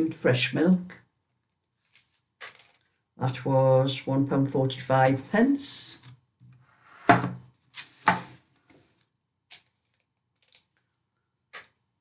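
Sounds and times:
packaging clicks: 0:09.5 - 0:10.9.

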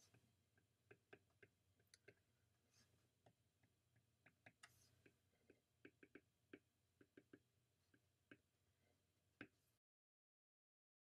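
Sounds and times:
stylus tapping on glass screen: 0:04.2 - 0:08.5.

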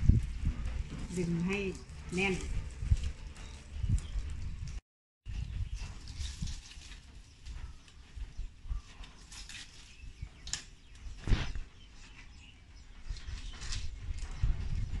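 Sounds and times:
palm leaves rustling and crackling: 0:00.0 - 0:15.0.

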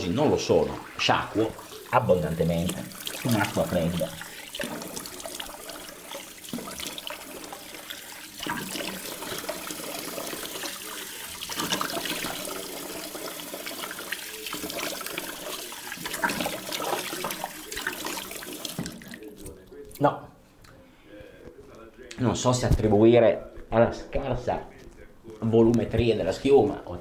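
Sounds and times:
water splashing on face: 0:00.8 - 0:19.4
tap running into sink: 0:04.5 - 0:19.2.

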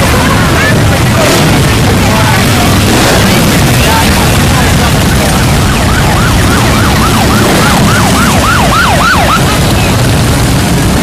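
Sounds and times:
motorcycle engines rumbling: 0:00.0 - 0:11.0
siren yelping: 0:02.4 - 0:10.7.

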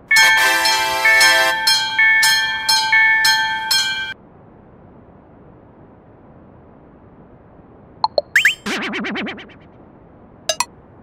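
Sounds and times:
railroad crossing bell ringing: 0:00.0 - 0:04.2.

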